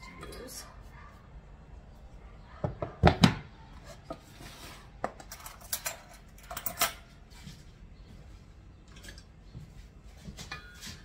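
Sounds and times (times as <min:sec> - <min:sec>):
metal utensils clinking against bowls: 0:05.2 - 0:07.0, 0:08.9 - 0:09.3.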